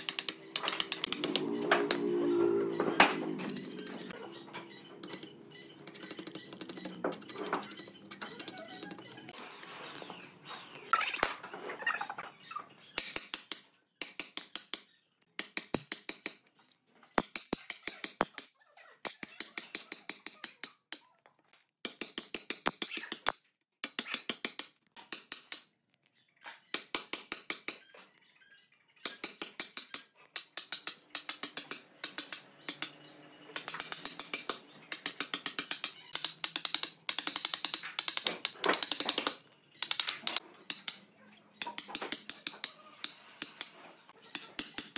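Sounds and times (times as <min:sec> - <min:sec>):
chisel tapping wood: 0:41.6 - 0:43.8.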